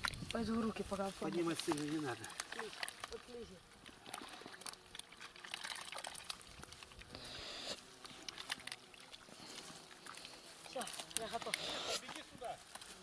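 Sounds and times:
water splashing and dripping: 0.0s - 7.2s, 7.9s - 12.2s
small scattered clicks: 9.6s - 13.0s.

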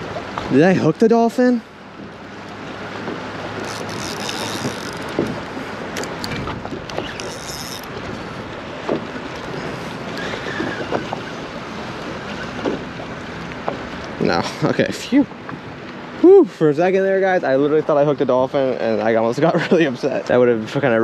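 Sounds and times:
water washing against hull: 0.0s - 21.0s.

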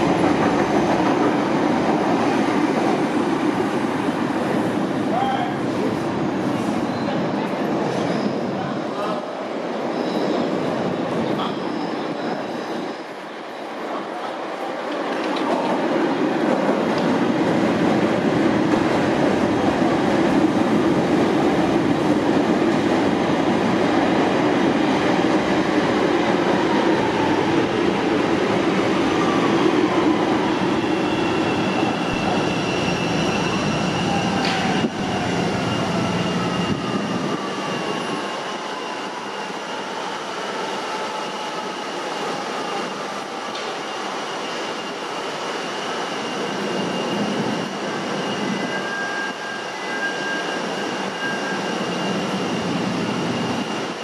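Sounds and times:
train running on tracks: 0.0s - 54.0s
high wheel squeal: 30.8s - 40.1s, 43.8s - 54.0s.

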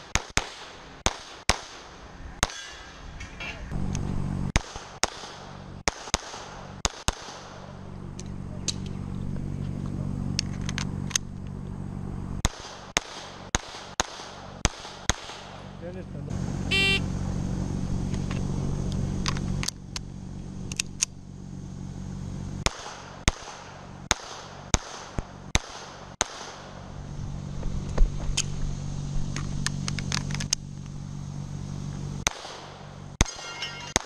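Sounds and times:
pistol shots: 0.0s - 2.7s, 4.6s - 7.7s, 12.4s - 15.8s, 22.6s - 26.8s, 32.2s - 34.0s
low steady hum: 1.8s - 34.0s.

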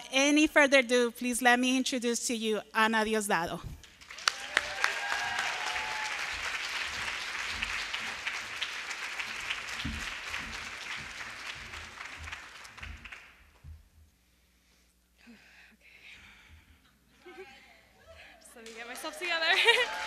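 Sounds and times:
audience applauding: 4.0s - 13.4s, 18.6s - 20.0s.

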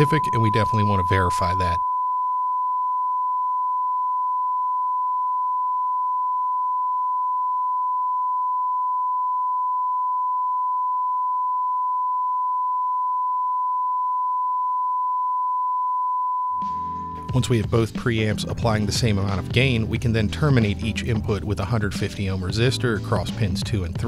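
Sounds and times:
sine wave test tone: 0.0s - 17.4s.

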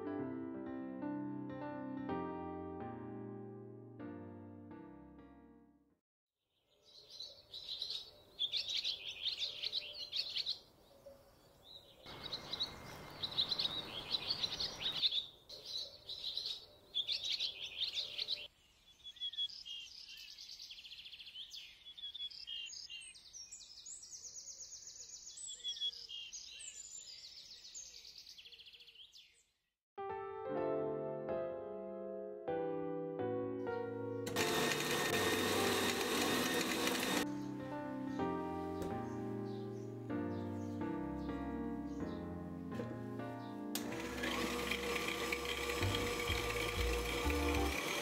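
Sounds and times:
piano music: 0.0s - 6.0s, 30.0s - 48.0s
songbirds singing: 6.5s - 29.6s, 37.2s - 43.8s.

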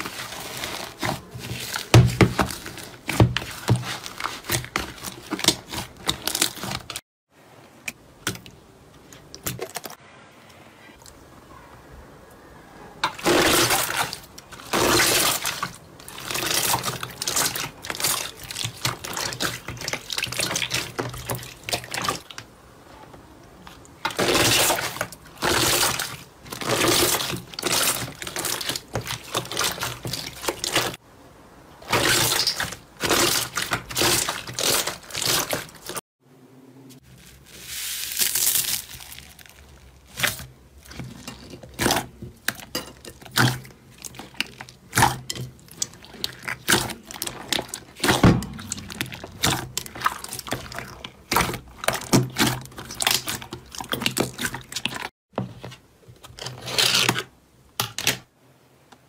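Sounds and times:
slime squelching and crackling: 0.0s - 7.0s, 13.0s - 22.4s, 23.6s - 31.0s, 31.8s - 36.0s, 37.0s - 55.1s.

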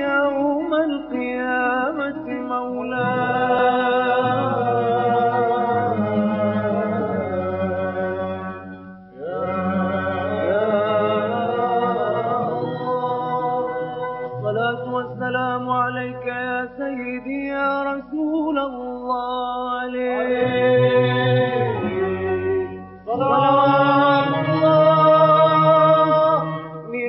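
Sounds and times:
man singing funeral chant: 9.2s - 13.8s, 19.7s - 26.6s.

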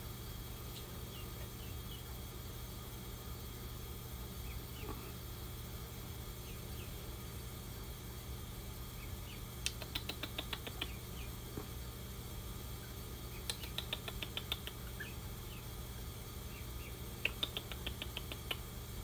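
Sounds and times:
gosling peeping: 0.5s - 2.8s, 4.2s - 5.3s, 6.2s - 7.2s, 8.8s - 12.0s, 12.7s - 18.7s.

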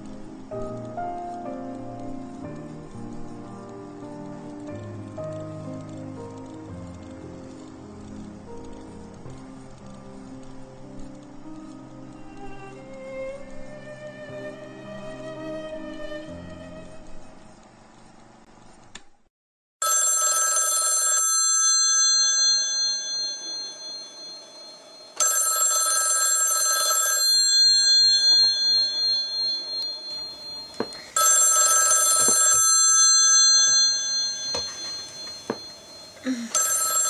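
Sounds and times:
telephone bell ringing: 19.8s - 37.0s.

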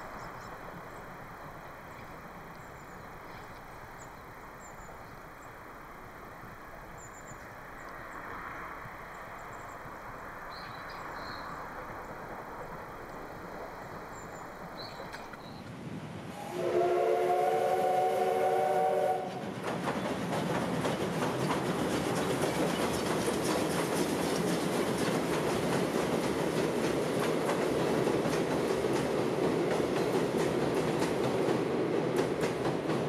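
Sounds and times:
train rumbling across steel bridge: 0.0s - 33.0s
clattering train wheels: 10.6s - 15.4s, 16.6s - 33.0s
steam locomotive whistle: 16.3s - 19.5s.

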